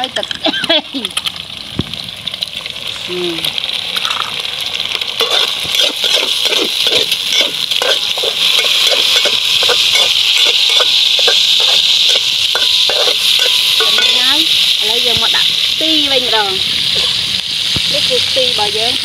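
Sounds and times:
eggs sizzling in oil: 0:00.0 - 0:19.0
metal spatula scraping a pan: 0:05.2 - 0:14.5.

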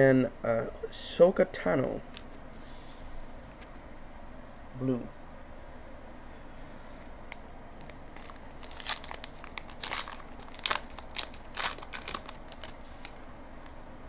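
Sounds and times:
wrapper crinkling and tearing: 0:07.8 - 0:13.2.

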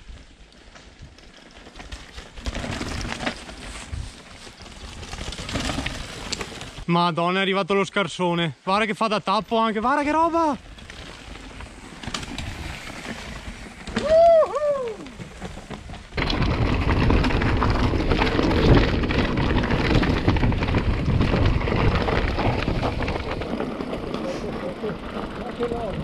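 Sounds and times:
bike tyres on rough trail: 0:00.0 - 0:26.0
wind buffeting microphone: 0:16.1 - 0:26.0.

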